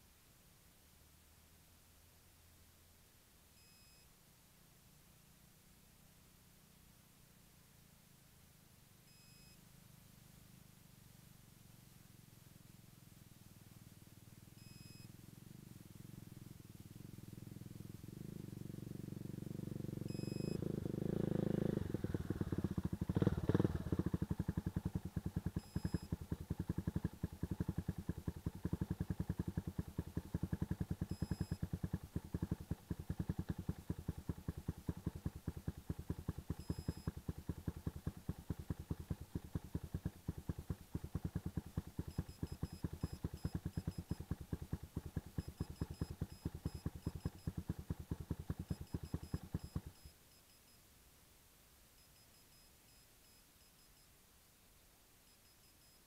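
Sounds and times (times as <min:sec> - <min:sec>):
quad bike engine idling: 0:11.6 - 0:50.1.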